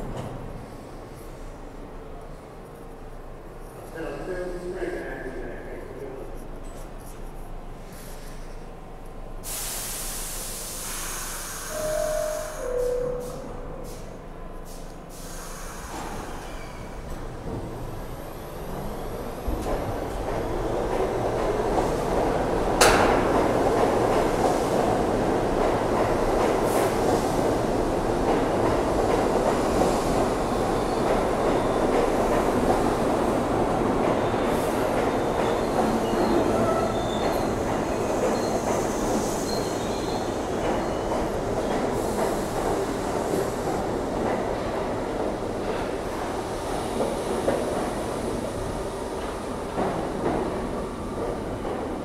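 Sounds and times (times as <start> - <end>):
subway train humming: 0.0 - 52.0
compressed air hissing: 9.4 - 14.1, 14.7 - 16.5.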